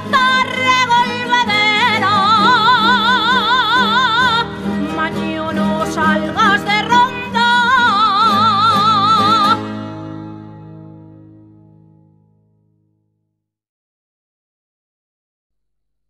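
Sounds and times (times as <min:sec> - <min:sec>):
person singing with vibrato: 0:00.0 - 0:10.1
plucked string accompaniment: 0:00.0 - 0:13.0.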